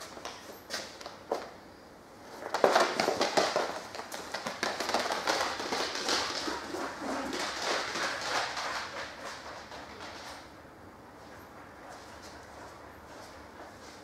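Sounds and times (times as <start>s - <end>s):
dog claws clattering on concrete: 2.4s - 10.4s.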